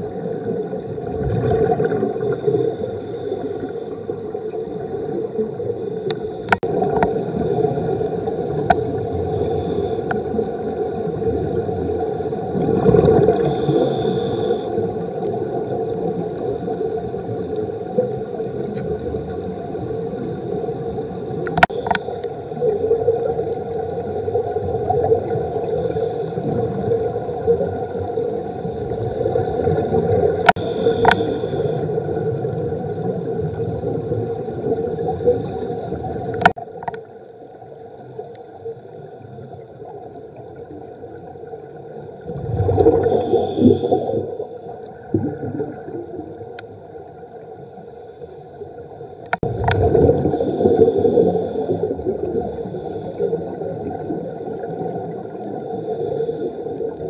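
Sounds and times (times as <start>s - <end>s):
water gurgling: 0.0s - 47.6s, 49.0s - 57.0s
low underwater hum: 0.0s - 57.0s
scuba regulator breath with bubbles: 0.9s - 19.4s, 21.4s - 36.6s, 42.2s - 46.4s, 49.4s - 57.0s.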